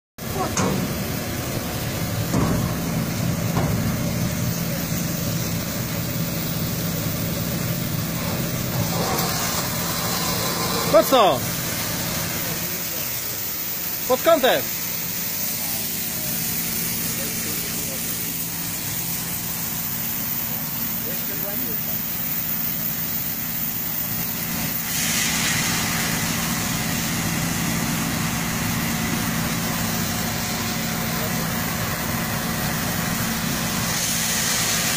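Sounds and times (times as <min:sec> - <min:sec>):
fire engine pump droning: 0:00.2 - 0:34.9
hose spraying water hiss: 0:00.3 - 0:34.9
hose nozzle water spray hiss: 0:21.7 - 0:27.1, 0:33.7 - 0:34.9.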